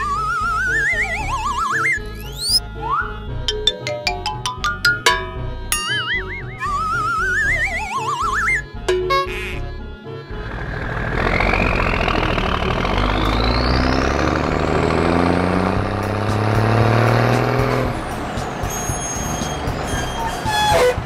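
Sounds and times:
cartoon truck engine revving: 0.0 - 2.6, 6.2 - 21.0
short chiming tones: 3.7 - 7.5.

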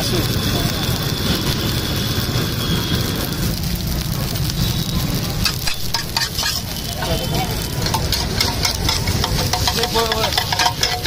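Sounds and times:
constant low rumble: 0.0 - 11.0
rice sizzling on a hot pan: 0.0 - 11.0.

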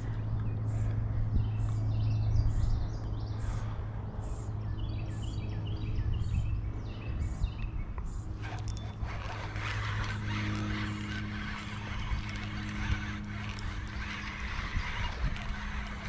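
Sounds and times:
steady low hum: 8.1 - 16.0.

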